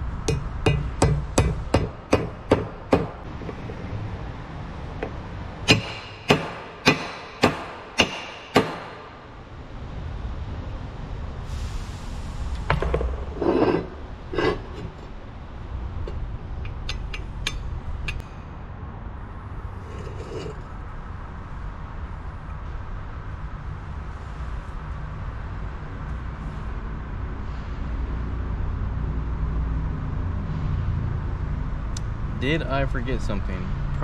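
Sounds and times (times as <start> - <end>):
hammer blows on metal: 0.2 - 3.2
metal parts clinking: 16.1 - 18.2.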